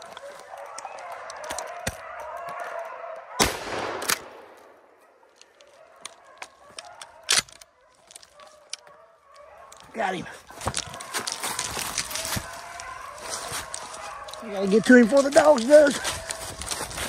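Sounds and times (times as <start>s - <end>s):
distant hounds baying: 0.0s - 3.5s, 4.8s - 17.0s
gunshots: 3.4s - 4.8s.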